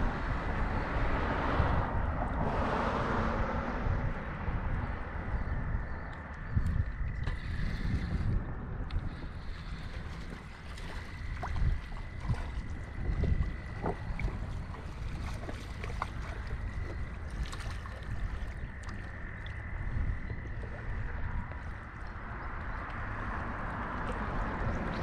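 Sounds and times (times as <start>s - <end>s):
wind buffeting microphone: 0.0s - 25.0s
small waves lapping on rocks: 9.0s - 25.0s.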